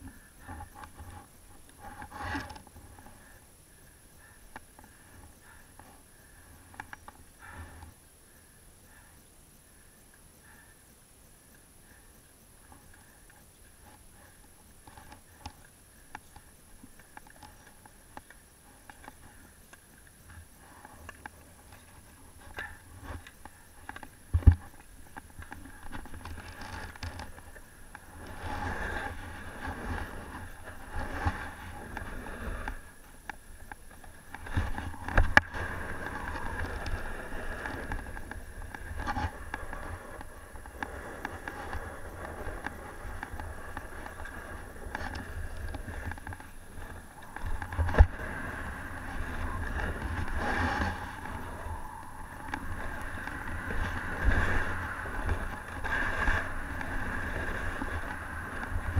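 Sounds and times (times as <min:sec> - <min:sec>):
wind rumble on microphone: 0:16.8 - 0:58.9
snowboard scraping over snow: 0:25.6 - 0:32.9, 0:34.4 - 0:58.9.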